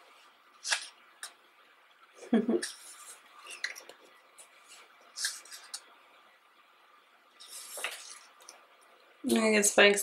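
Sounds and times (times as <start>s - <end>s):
page turning: 2.7s - 5.8s, 7.4s - 8.6s
paper rustling: 7.4s - 8.5s.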